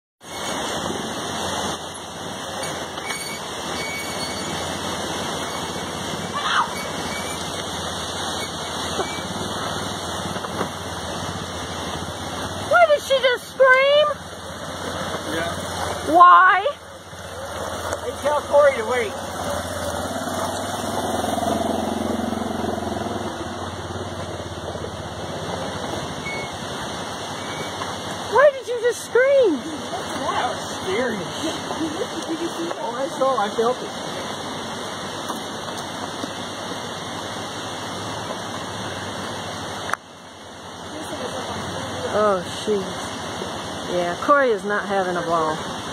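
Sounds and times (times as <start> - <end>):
continuous rushing noise: 0.2 - 45.9
atv engine running: 0.6 - 45.9
engine running at low revs: 13.8 - 28.4.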